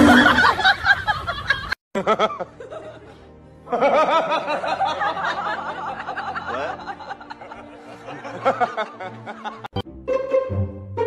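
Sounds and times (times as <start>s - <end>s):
person laughing: 0.0s - 3.1s
background music: 0.0s - 11.0s.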